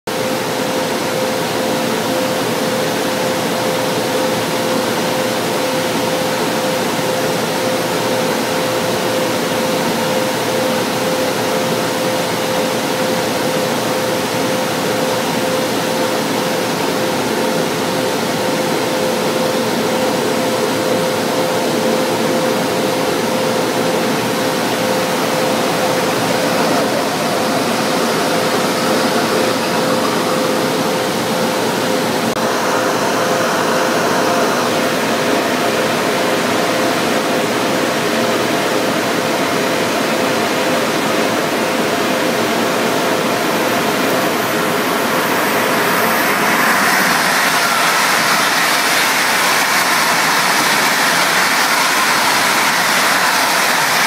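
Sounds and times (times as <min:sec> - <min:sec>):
mid-pitched whine: 0:00.1 - 0:54.0
train ventilation hum: 0:42.8 - 0:54.0.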